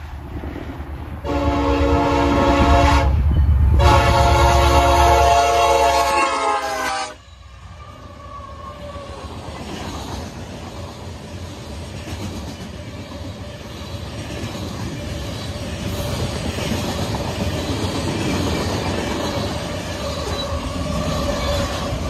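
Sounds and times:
train rumbling and rattling past: 0.0s - 22.0s
locomotive horn blasts: 1.2s - 3.2s, 3.8s - 7.2s.

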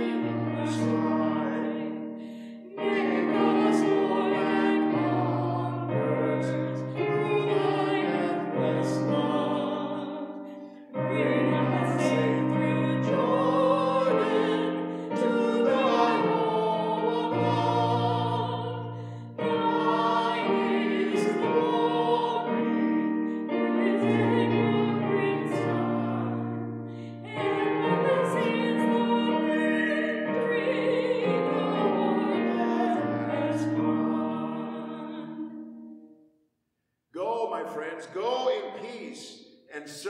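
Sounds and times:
hymn singing: 0.0s - 36.0s, 37.2s - 40.0s
keyboard accompaniment: 0.0s - 36.3s.

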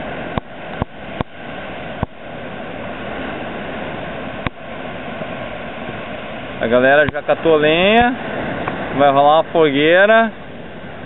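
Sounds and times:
surf on a sandy beach: 0.0s - 11.0s.

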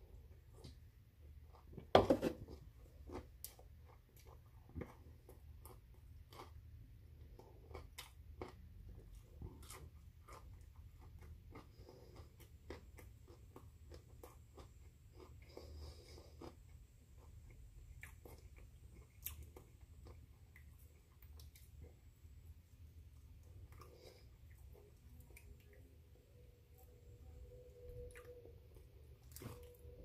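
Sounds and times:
broccoli being chewed: 0.1s - 30.0s.

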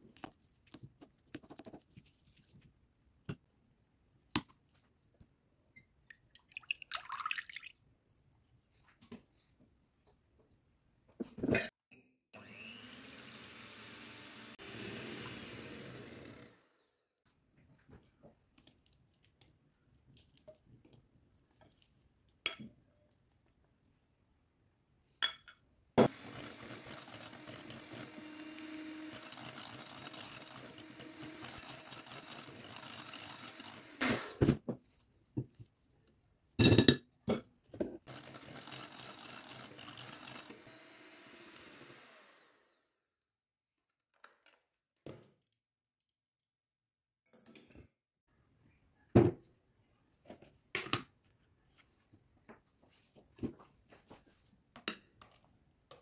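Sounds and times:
electric hand mixer running: 12.4s - 16.8s, 26.0s - 34.1s, 38.1s - 42.8s.

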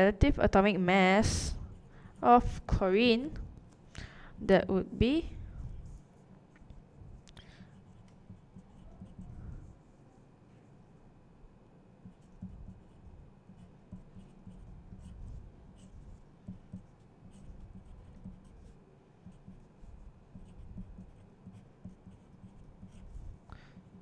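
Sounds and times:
pencil scratching on paper: 5.3s - 6.2s, 7.1s - 9.9s, 12.0s - 24.0s.

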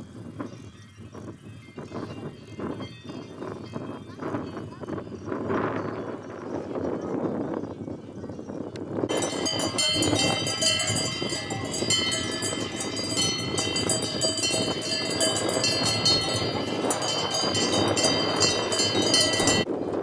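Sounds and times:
cowbells clanging: 9.1s - 19.7s.

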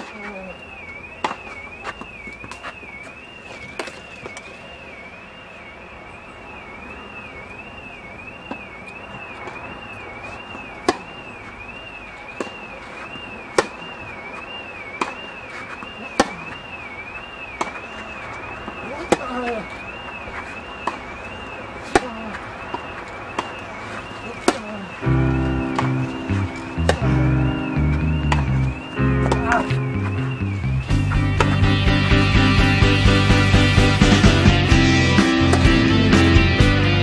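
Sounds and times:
tennis ball struck by rackets: 1.2s - 1.4s, 10.8s - 11.1s, 13.5s - 13.8s, 25.7s - 26.2s, 26.8s - 27.1s, 29.2s - 29.9s, 31.0s - 31.6s, 35.4s - 35.9s
high warbling tone: 25.0s - 37.0s.

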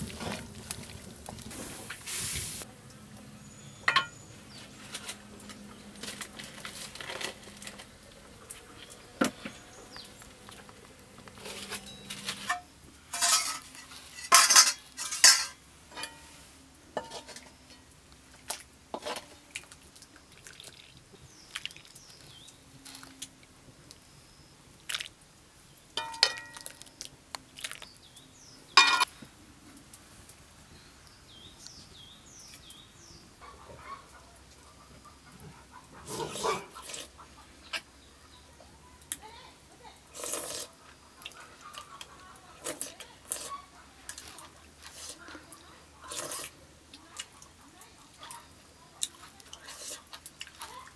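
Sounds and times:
metal ladle clinking against pot: 3.9s - 4.2s, 13.2s - 16.3s, 26.0s - 26.7s, 28.8s - 29.1s.

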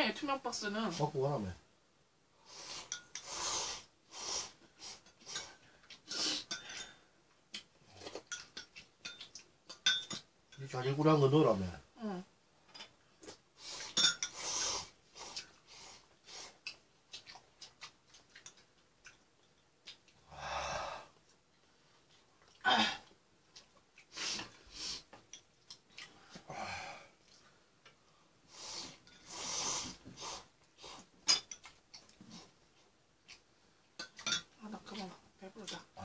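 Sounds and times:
breaths: 20.3s - 21.2s, 26.2s - 27.2s.

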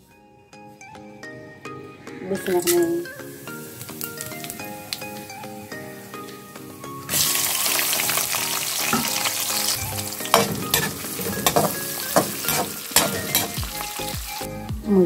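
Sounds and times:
onions sizzling in hot oil: 2.5s - 6.2s, 7.1s - 14.5s
spoon scraping and knocking pot: 10.3s - 13.6s.

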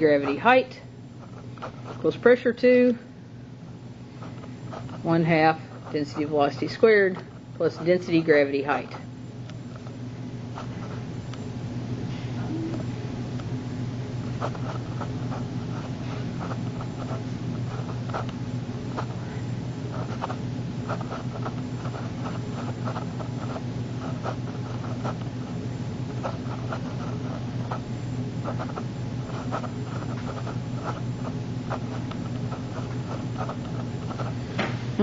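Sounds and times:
pen scratching on paper: 0.0s - 2.4s, 4.2s - 9.0s, 14.2s - 19.2s, 19.9s - 34.4s
steady low hum: 0.0s - 35.0s.

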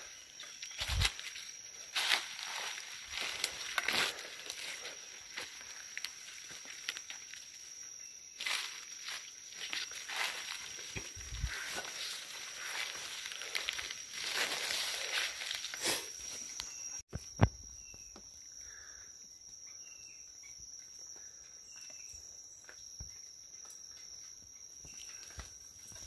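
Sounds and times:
rustling in leaf litter: 0.0s - 7.8s, 8.4s - 16.6s
footsteps in undergrowth: 0.0s - 17.0s
high insect drone: 0.0s - 26.0s.

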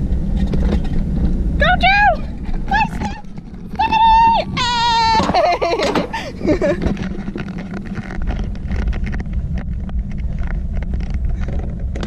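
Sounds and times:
sled rumbling down steel track: 0.0s - 12.0s
wind buffeting microphone: 0.0s - 12.0s
clicks and rattles: 5.1s - 12.0s.

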